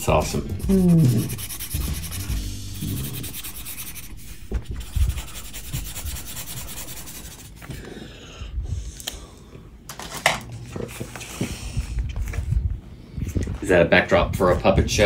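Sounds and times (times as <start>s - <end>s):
marker scribbling on paper: 0.0s - 7.6s.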